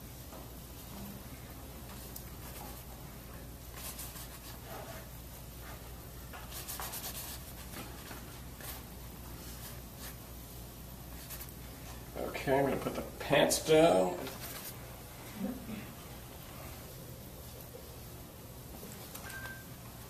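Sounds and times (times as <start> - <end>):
low room hum: 0.0 - 20.0
paint brush strokes on canvas: 1.8 - 10.4, 11.1 - 12.0, 14.2 - 14.9.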